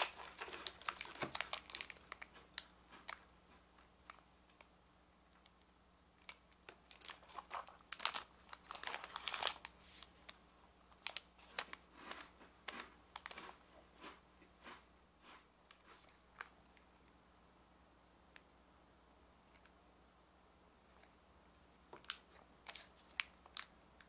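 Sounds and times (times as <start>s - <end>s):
plastic wrapper crinkling and tearing: 0.0s - 3.3s, 6.2s - 13.4s, 21.9s - 23.8s.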